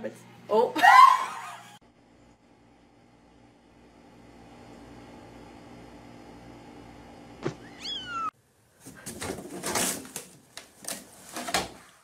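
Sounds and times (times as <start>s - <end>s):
kitten meowing: 7.6s - 8.3s
clattering and rustling knocks: 8.8s - 11.8s.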